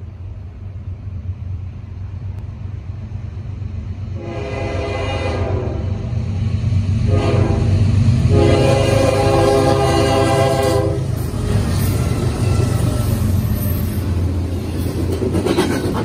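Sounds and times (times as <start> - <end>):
locomotive rumble: 0.0 - 16.0
locomotive air horn blasts: 4.2 - 6.0, 7.1 - 11.1.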